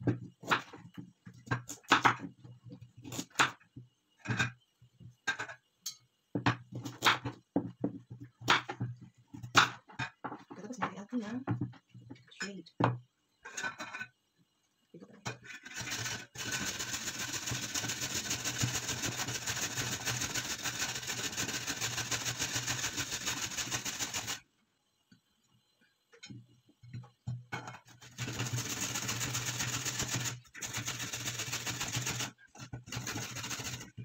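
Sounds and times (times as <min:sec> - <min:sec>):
carrot grated on metal grater: 0:15.6 - 0:24.4, 0:28.0 - 0:33.9.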